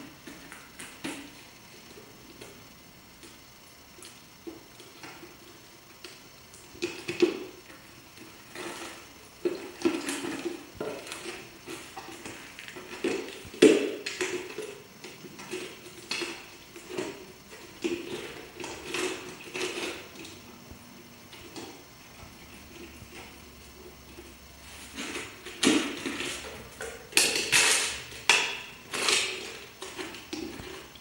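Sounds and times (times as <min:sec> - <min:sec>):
puppy chewing plastic jar: 0:04.0 - 0:20.4, 0:24.1 - 0:31.0.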